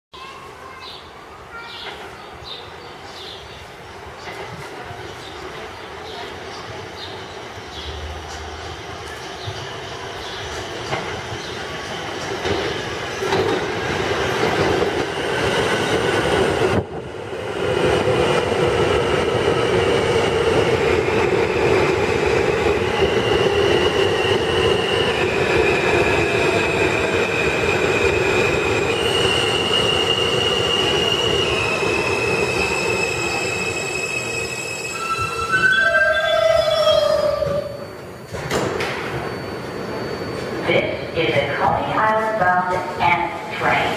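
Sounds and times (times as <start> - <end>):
train wheels rumbling on rails: 1.6 - 40.7
high whine of train motors: 7.5 - 42.2.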